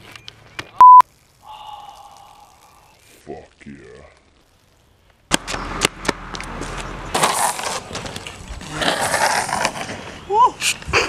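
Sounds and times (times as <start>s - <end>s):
longboard wheels rolling on asphalt: 3.0s - 11.0s.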